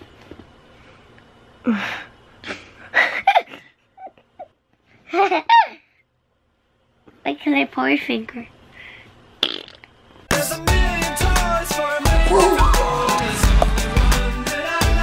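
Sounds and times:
child laughing: 3.0s - 5.9s, 12.3s - 13.0s.

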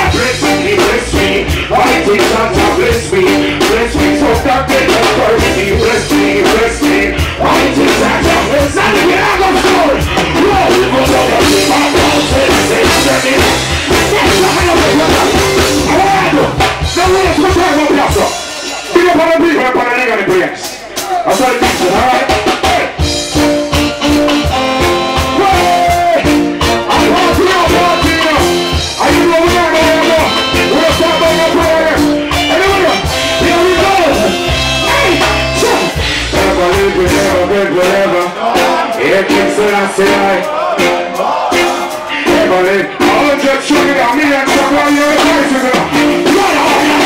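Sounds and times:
deep bass note: 0.0s - 17.6s, 26.5s - 37.6s
man singing into microphone: 0.0s - 23.1s, 24.5s - 47.0s
live reggae band playing: 0.0s - 47.0s.

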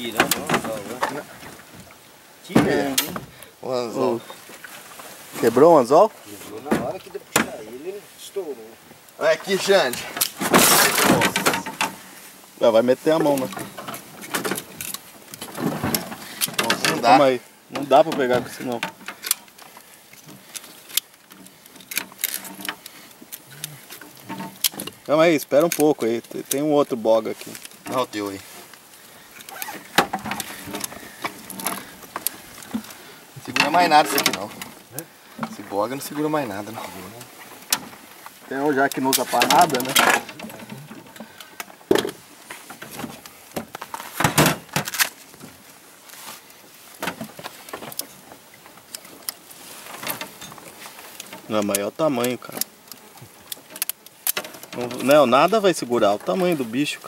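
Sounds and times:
knocks and clatter in a boat: 0.0s - 3.4s, 6.6s - 7.8s, 9.4s - 12.1s, 13.1s - 19.3s, 29.6s - 45.7s, 46.8s - 57.0s.

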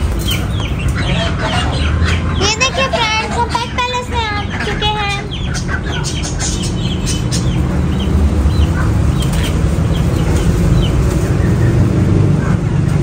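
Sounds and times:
small birds chirping: 0.0s - 13.0s.

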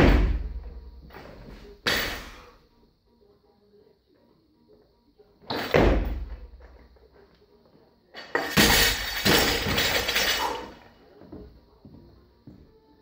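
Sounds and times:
barbell plates bouncing and rattling: 8.3s - 10.7s.

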